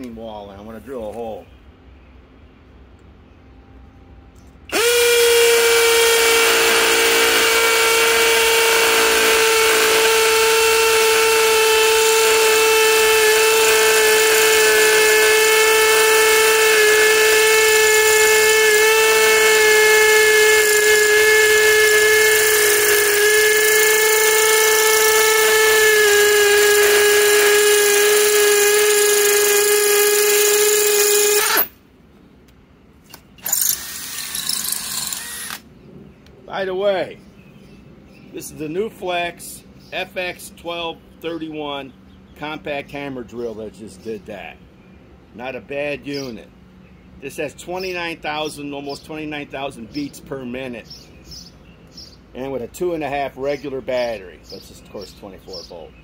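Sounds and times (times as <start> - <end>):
hammer drill drilling into concrete: 4.7 - 31.7, 33.4 - 35.6.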